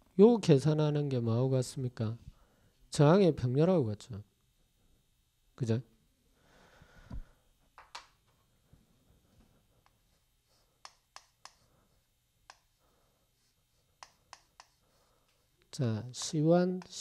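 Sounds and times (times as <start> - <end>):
chalk tapping on chalkboard: 14.0 - 14.8.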